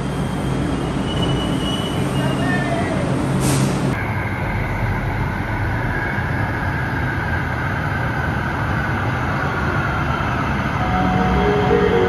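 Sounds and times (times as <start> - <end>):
light rail train rumble: 0.0 - 12.0
train whine falling in pitch: 10.8 - 12.0.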